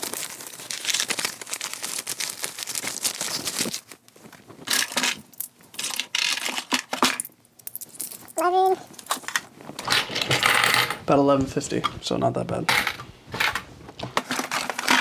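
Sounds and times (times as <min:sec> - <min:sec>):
cellophane crinkling: 0:00.0 - 0:09.8.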